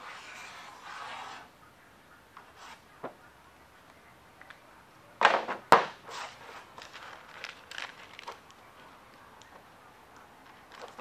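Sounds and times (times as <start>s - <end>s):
loud scrape: 0.0s - 1.5s
sheet sliding on tabletop: 0.0s - 1.5s.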